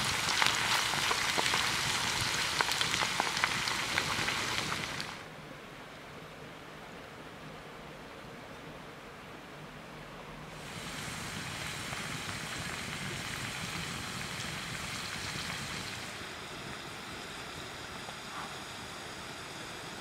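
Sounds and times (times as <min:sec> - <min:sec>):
fries sizzling in hot oil: 0:00.0 - 0:05.2, 0:10.5 - 0:20.0.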